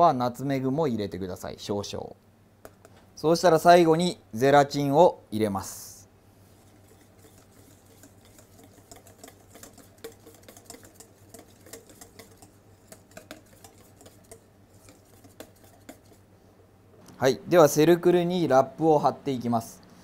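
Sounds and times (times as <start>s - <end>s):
whisk scraping steel bowl: 6.4s - 16.3s.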